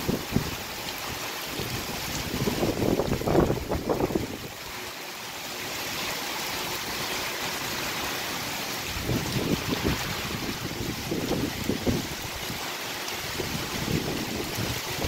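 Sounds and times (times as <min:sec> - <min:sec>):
heavy rain pouring: 0:00.0 - 0:15.0
wind buffeting microphone: 0:01.6 - 0:04.5, 0:08.9 - 0:12.6, 0:13.2 - 0:15.0.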